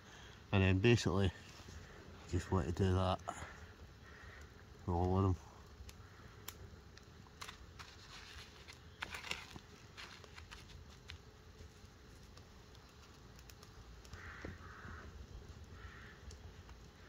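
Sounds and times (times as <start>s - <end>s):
crumbs crunching and crackling: 5.9s - 17.0s.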